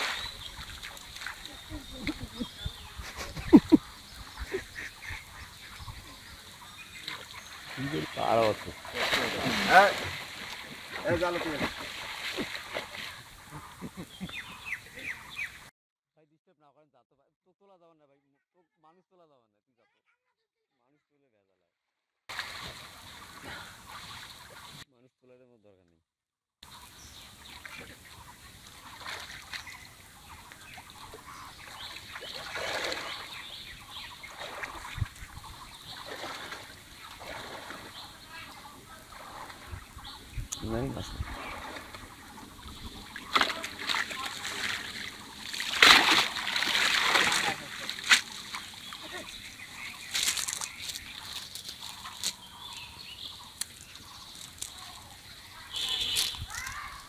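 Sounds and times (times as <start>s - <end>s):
water splashing and trickling: 0.0s - 13.9s, 22.3s - 24.8s, 26.6s - 57.0s
net and fish slapping ground: 43.2s - 49.2s, 49.9s - 52.4s
faint bird calls: 47.4s - 57.0s.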